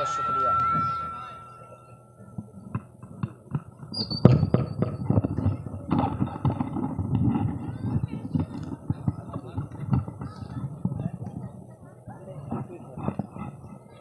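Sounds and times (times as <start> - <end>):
brief high squeal: 0.0 - 2.0.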